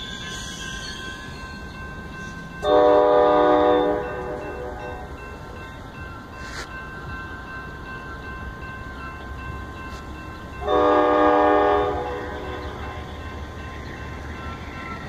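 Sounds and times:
train cars rumbling past: 0.0 - 15.0
train horn blast: 2.6 - 5.1, 10.6 - 13.2.

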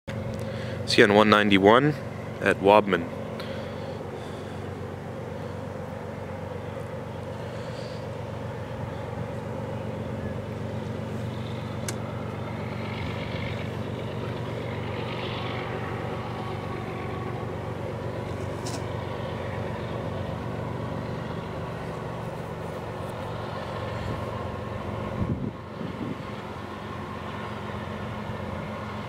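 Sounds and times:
diesel locomotive engine drone: 0.1 - 29.0
faint steady whine: 0.1 - 29.0.

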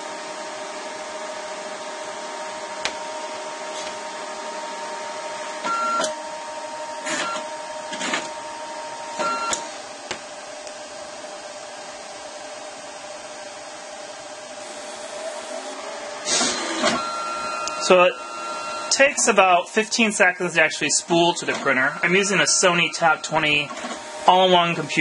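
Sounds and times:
photo printer humming: 0.8 - 10.0, 14.6 - 25.0
printer mechanism bursts: 7.0 - 8.4, 16.2 - 25.0.

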